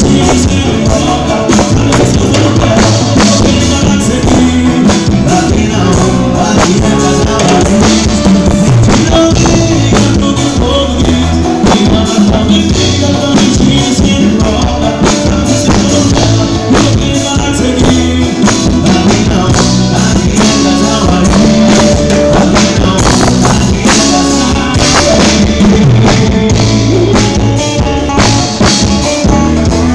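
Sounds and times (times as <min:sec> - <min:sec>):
live band playing: 0:00.0 - 0:29.9
male singer: 0:00.0 - 0:29.9.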